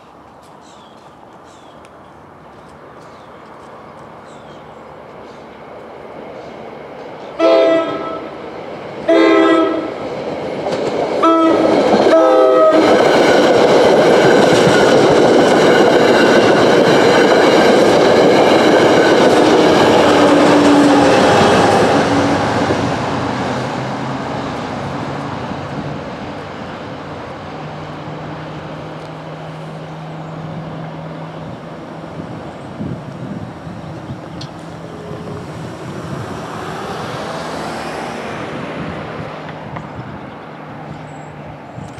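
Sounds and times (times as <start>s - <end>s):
train passing with rumble: 2.1s - 41.9s
wheels clacking on rails: 5.1s - 41.9s
train horn blasts: 7.4s - 8.3s, 9.1s - 10.0s, 11.2s - 13.0s.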